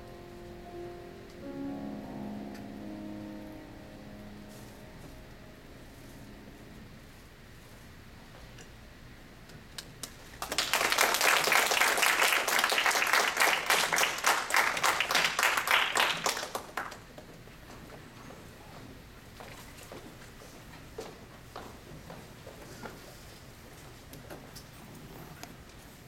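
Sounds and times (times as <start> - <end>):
audience applauding: 10.4 - 17.1.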